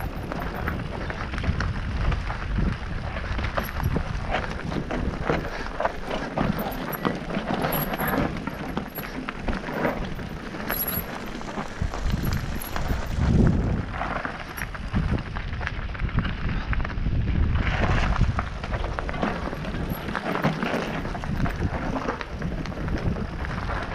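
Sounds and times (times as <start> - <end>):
bike rattling: 0.0 - 23.9
bike tyres crunching on rocks: 0.0 - 23.9
wind buffeting microphone: 0.0 - 23.9.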